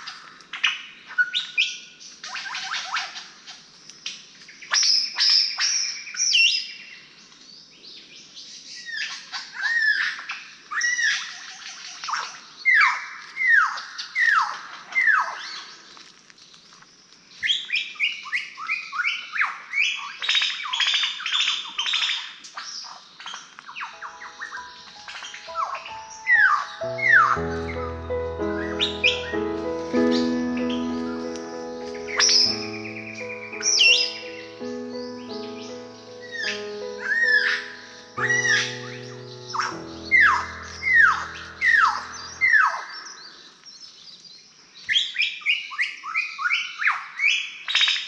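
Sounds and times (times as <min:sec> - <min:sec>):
lyrebird singing: 0:23.2 - 0:43.5.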